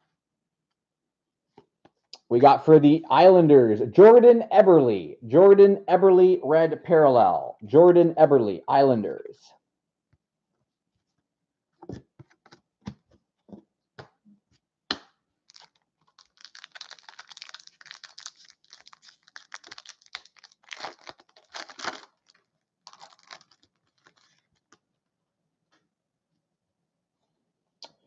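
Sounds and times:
foil wrapper crinkling and tearing: 0:15.5 - 0:24.8.

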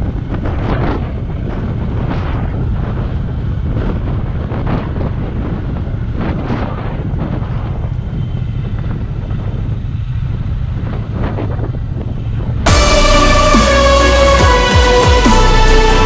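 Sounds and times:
wind buffeting microphone: 0:00.0 - 0:12.8
motorcycle engine running: 0:00.0 - 0:15.8.

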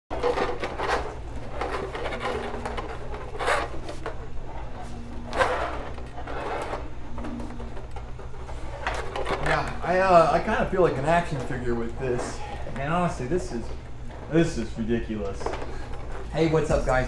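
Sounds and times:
plastic pieces knocking and rubbing: 0:00.1 - 0:04.4
steady low hum: 0:00.1 - 0:17.0.

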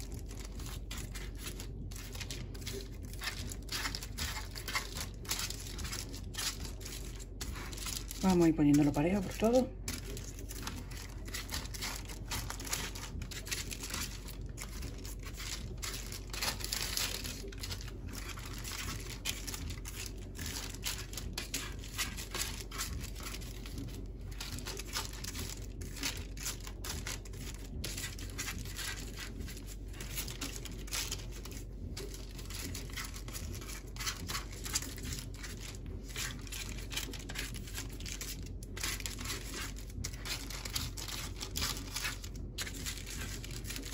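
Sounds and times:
baking paper rustling: 0:00.0 - 0:43.9.

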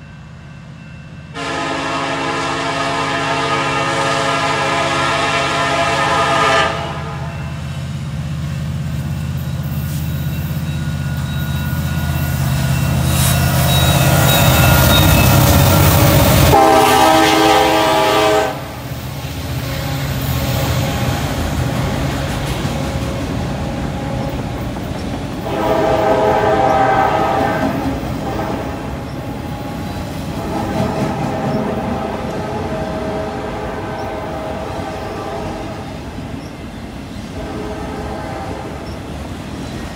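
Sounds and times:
diesel locomotive engines rumbling: 0:00.0 - 0:39.9
train cars rolling on rails: 0:00.0 - 0:39.9
locomotive air horn: 0:01.4 - 0:07.5, 0:16.3 - 0:18.8, 0:25.4 - 0:28.8, 0:30.3 - 0:35.9, 0:37.4 - 0:38.9.

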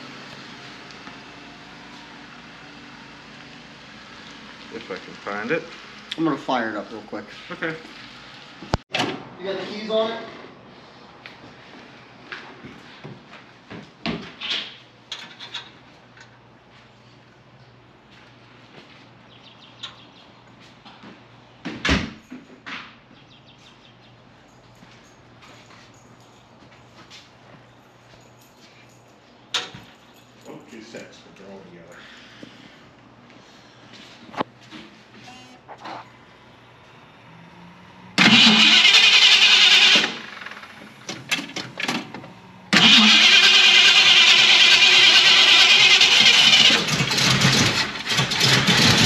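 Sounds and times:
car engine starting: 0:35.7 - 0:49.0.

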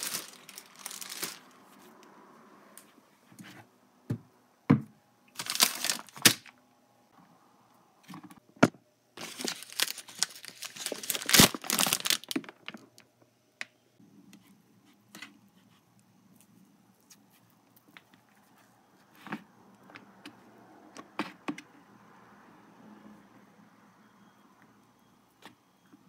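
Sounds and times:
plastic packaging crinkling and tearing: 0:00.0 - 0:01.6, 0:05.4 - 0:06.5, 0:09.2 - 0:13.1.

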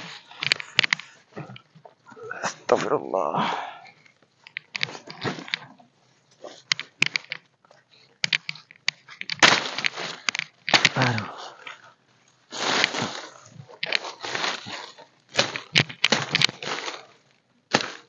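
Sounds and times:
plant stems snapping: 0:08.2 - 0:11.8, 0:12.6 - 0:18.0
leaves rustling: 0:08.5 - 0:18.0.

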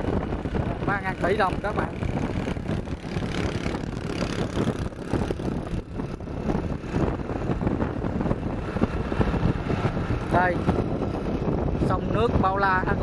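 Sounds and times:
motorbike road noise: 0:00.0 - 0:13.0
wind buffeting microphone: 0:00.0 - 0:13.0.

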